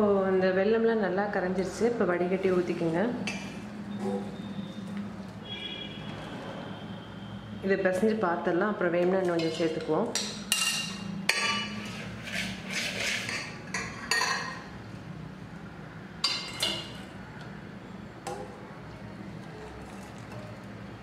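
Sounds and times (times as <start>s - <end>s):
metal spoon scraping: 9.3s - 14.4s.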